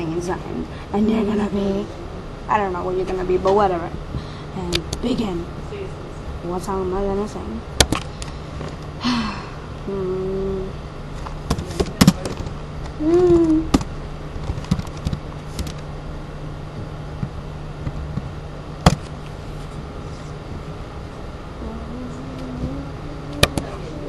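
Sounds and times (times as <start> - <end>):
low hum: 0.0 - 24.0
person humming: 9.0 - 10.8, 13.0 - 13.8, 21.6 - 24.0.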